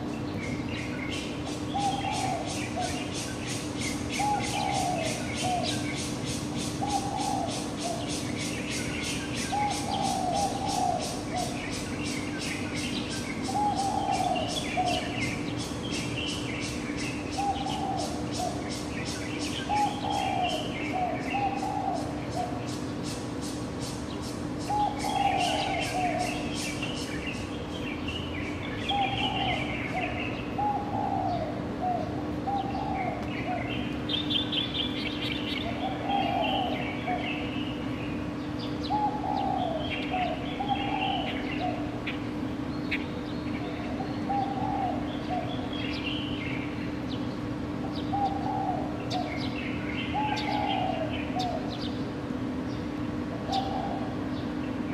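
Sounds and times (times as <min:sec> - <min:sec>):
birds chirping and twittering: 0:00.0 - 0:54.9
steady low hum: 0:00.0 - 0:54.9.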